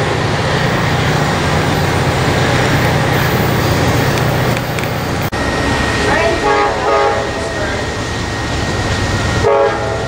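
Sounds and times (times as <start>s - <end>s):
diesel locomotive drone: 0.0s - 10.0s
train cars on rails: 0.0s - 10.0s.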